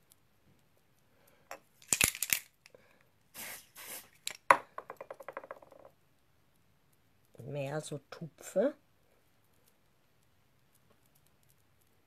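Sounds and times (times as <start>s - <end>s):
handling clicks and rustles: 0.0s - 2.7s
spray bottle hissing: 3.4s - 4.4s.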